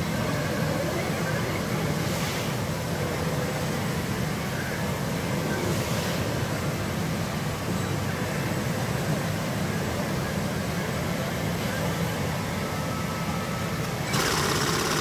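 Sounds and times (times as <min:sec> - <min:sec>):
roar of many pachinko machines: 0:14.0 - 0:15.0.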